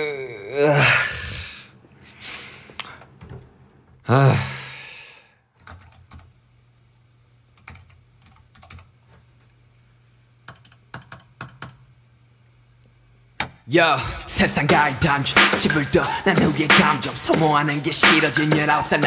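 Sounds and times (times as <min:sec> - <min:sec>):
drawn-out vocal sound: 0:00.0 - 0:03.0, 0:04.0 - 0:05.4, 0:13.7 - 0:19.0
keyboard typing: 0:05.6 - 0:06.3, 0:07.6 - 0:08.9, 0:10.4 - 0:11.8.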